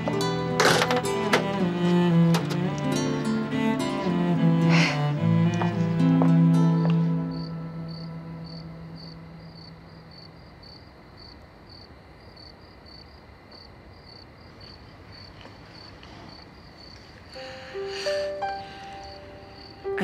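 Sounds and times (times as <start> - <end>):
cricket chirping: 6.0 - 20.0.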